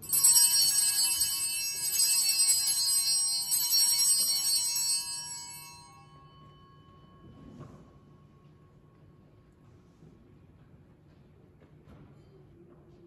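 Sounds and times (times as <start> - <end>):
altar bells ringing: 0.0 - 8.7.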